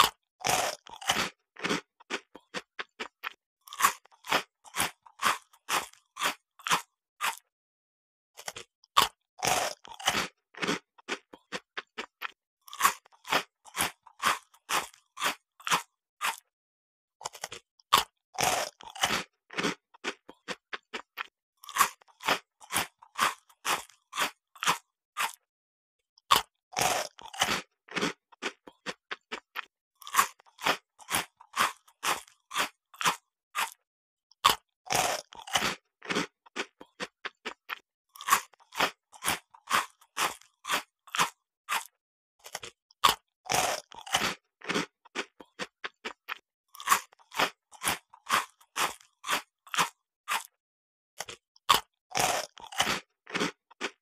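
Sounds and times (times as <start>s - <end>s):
cookie bite crunch: 0.0s - 7.5s, 8.4s - 16.5s, 17.2s - 25.5s, 26.2s - 50.6s, 51.2s - 54.0s
quick chewing crunches: 0.0s - 7.5s, 8.4s - 16.5s, 17.2s - 25.5s, 26.2s - 50.6s, 51.2s - 54.0s.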